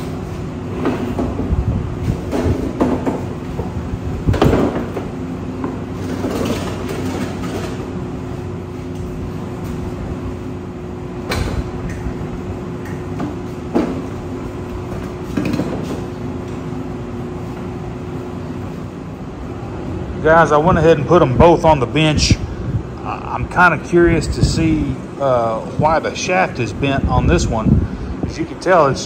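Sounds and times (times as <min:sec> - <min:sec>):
steady background hum: 0:00.0 - 0:29.0
lawn mower wheels rolling on concrete: 0:05.9 - 0:09.4.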